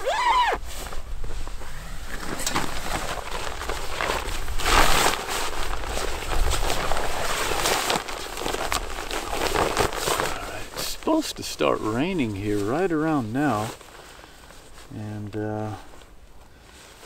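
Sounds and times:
rustling handling noise: 0:00.6 - 0:17.0.

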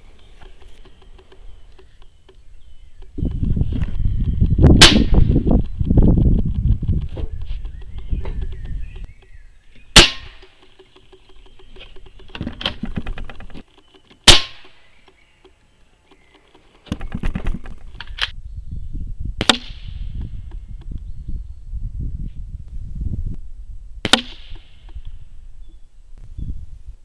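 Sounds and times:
faint clicks: 0:00.1 - 0:04.7, 0:10.4 - 0:18.4
pellet rifle shots: 0:04.8 - 0:05.4, 0:09.9 - 0:14.8, 0:19.4 - 0:20.1, 0:24.0 - 0:25.1.

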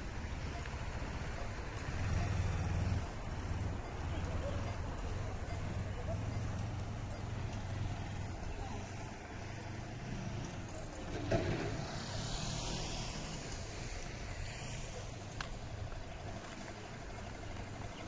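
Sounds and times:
traffic hum: 0:00.0 - 0:18.0
vehicle passing: 0:01.1 - 0:15.4.

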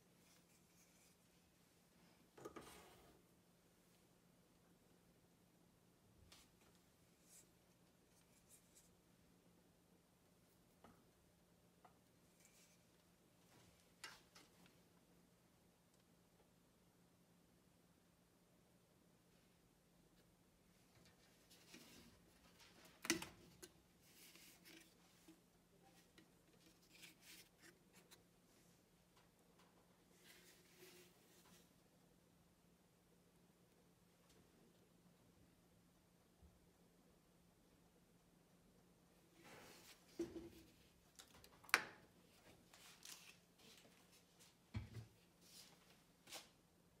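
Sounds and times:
soft rustles: 0:42.2 - 0:46.6.

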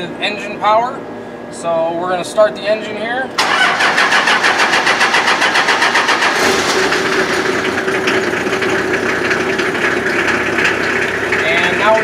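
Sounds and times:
truck starter cranking: 0:03.4 - 0:10.9
truck engine idling: 0:03.4 - 0:12.0.

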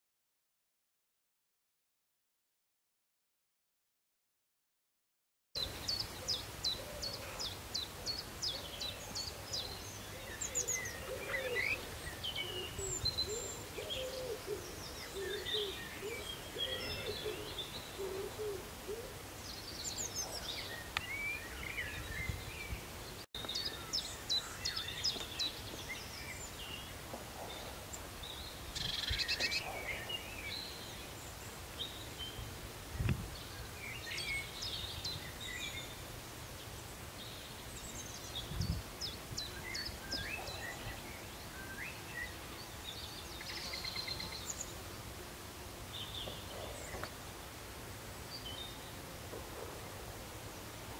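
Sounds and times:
low repeated bird call: 0:05.6 - 0:32.5
birds chirping and trilling: 0:05.6 - 0:45.1, 0:45.9 - 0:50.8.

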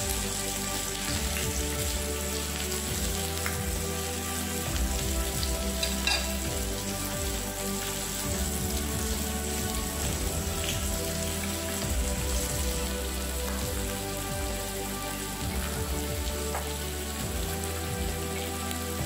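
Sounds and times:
food sizzling on electric grill: 0:00.0 - 0:12.2.

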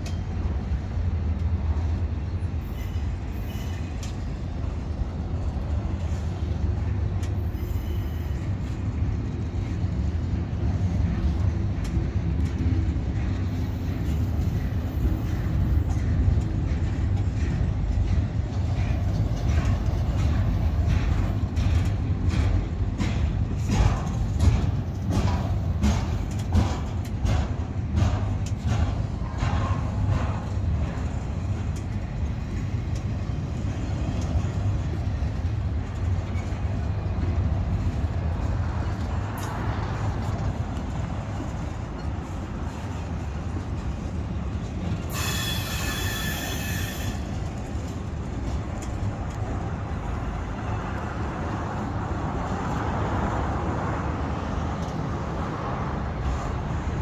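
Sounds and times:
clacks over rail joints: 0:00.0 - 0:57.0
train wheels rumbling on rail: 0:00.0 - 0:57.0
high wheel squeal: 0:02.6 - 0:04.0, 0:07.4 - 0:08.5, 0:45.1 - 0:47.4.

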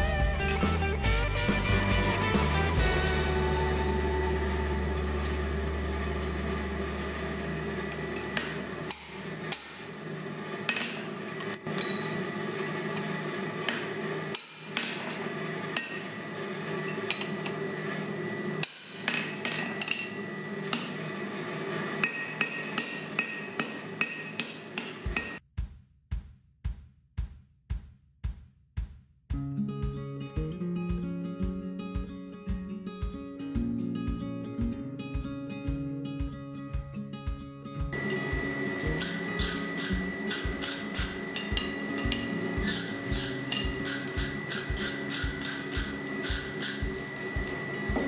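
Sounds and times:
steady workshop roar: 0:00.0 - 0:25.4, 0:37.9 - 0:48.0
hammer striking steel on anvil: 0:08.2 - 0:10.0, 0:13.7 - 0:15.2, 0:15.8 - 0:16.1, 0:18.6 - 0:21.0, 0:22.0 - 0:25.4, 0:38.9 - 0:48.0.

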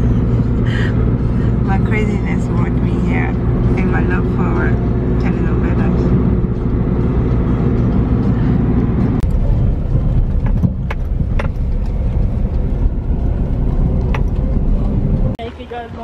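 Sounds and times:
car engine and tyres rumbling: 0:00.0 - 0:16.0
car knocks and rattles: 0:09.2 - 0:15.4.

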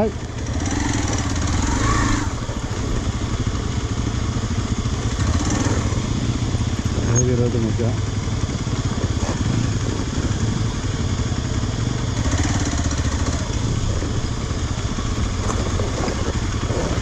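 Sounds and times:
motorcycle engine running: 0:00.0 - 0:17.0
other motorcycle engines: 0:00.0 - 0:17.0.

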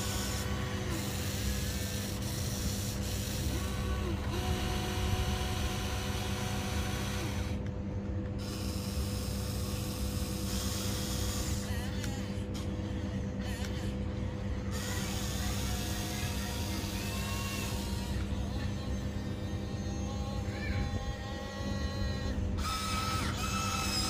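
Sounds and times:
small electric motors whirring: 0:00.0 - 0:24.0
steady low hum: 0:00.0 - 0:24.0.

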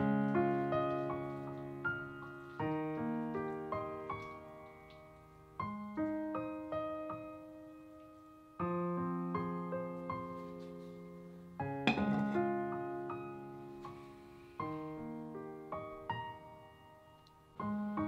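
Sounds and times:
slow solo piano: 0:00.0 - 0:18.0.

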